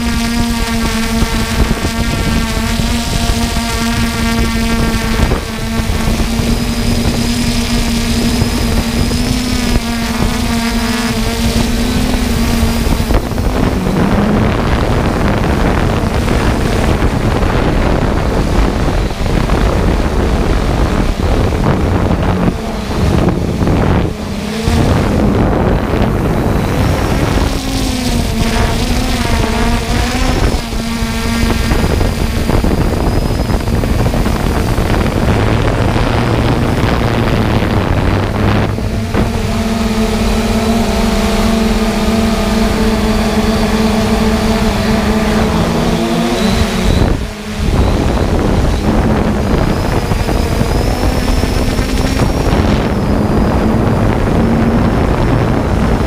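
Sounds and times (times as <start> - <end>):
drone motors whining: 0.0 - 56.0
wind noise on microphone: 0.0 - 56.0.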